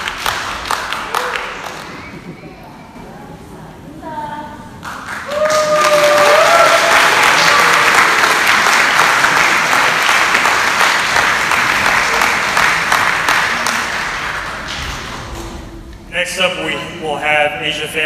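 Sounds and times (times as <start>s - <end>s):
audience applauding: 0.0s - 2.4s, 4.8s - 15.5s
person whooping: 5.3s - 7.6s.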